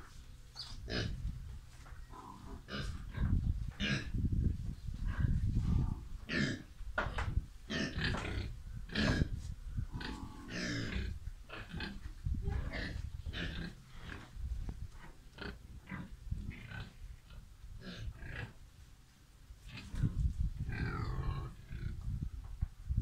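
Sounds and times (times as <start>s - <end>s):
pigs grunting: 2.1s - 4.2s, 5.1s - 6.7s, 7.7s - 12.0s, 12.7s - 14.3s, 20.7s - 22.0s.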